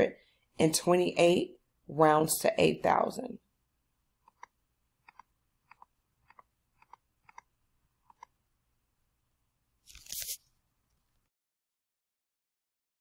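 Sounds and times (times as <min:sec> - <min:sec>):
pen clicks on drawing screen: 0:04.2 - 0:08.4.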